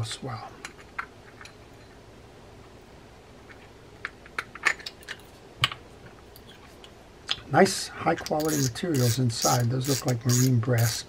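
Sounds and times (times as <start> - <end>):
fishing reel parts clicking: 8.2 - 11.0.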